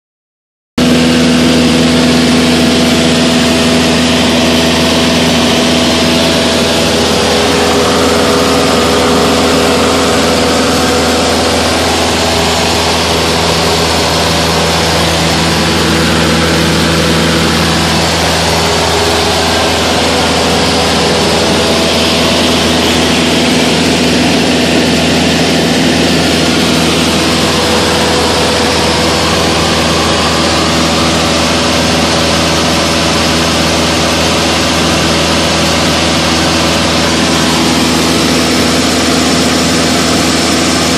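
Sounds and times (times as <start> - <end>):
airplane engine and propeller: 0.8 - 40.9
rush of air noise: 1.3 - 40.9.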